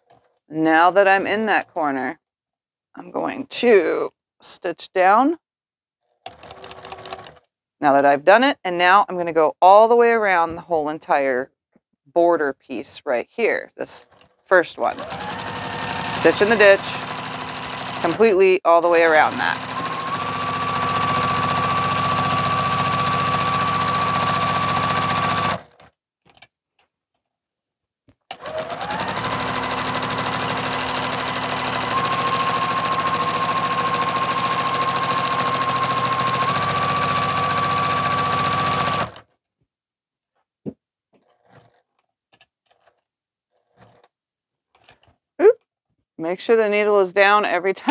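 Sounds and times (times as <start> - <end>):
sewing machine stitching: 6.2 - 7.5, 14.0 - 26.0, 28.3 - 39.3.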